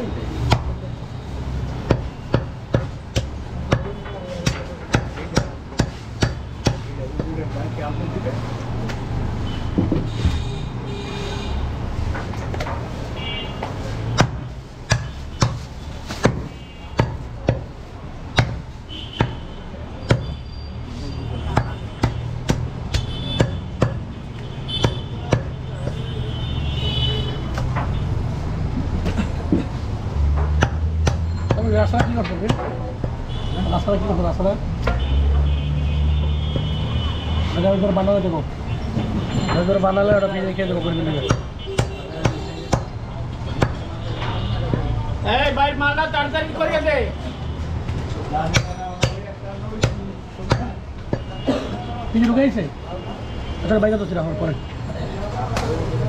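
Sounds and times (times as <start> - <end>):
cleaver chopping meat and bone: 0.4 - 0.8, 1.8 - 7.4, 14.0 - 17.7, 18.3 - 20.4, 21.5 - 24.1, 24.8 - 26.0, 30.2 - 33.2, 41.1 - 43.9, 48.4 - 51.3
meat cleaver chopping bone: 21.5 - 24.0, 25.3 - 26.0, 30.4 - 33.2, 41.3 - 42.9, 48.5 - 49.2, 49.8 - 51.2.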